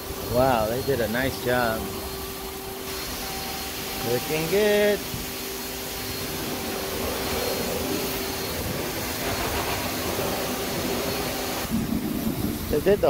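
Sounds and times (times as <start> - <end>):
car wash machinery drone: 0.0 - 13.0
thin steady hum: 0.0 - 13.0.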